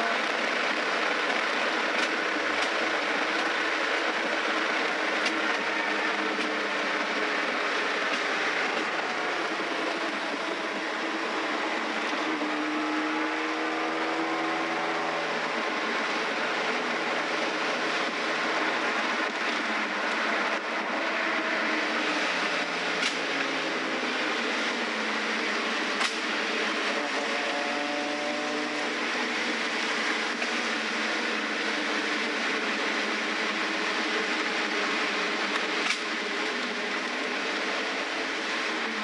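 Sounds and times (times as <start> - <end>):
road and wind noise: 0.0 - 39.0.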